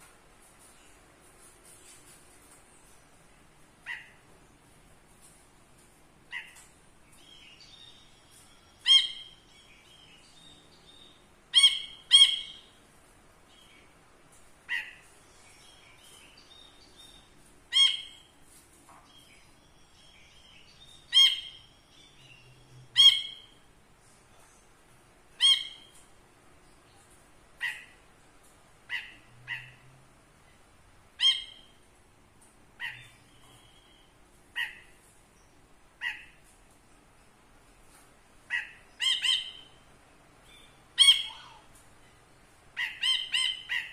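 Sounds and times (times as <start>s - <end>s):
bird sharp calls: 32.8s - 35.0s, 36.0s - 36.4s, 38.5s - 39.8s, 40.6s - 41.7s, 42.8s - 43.9s.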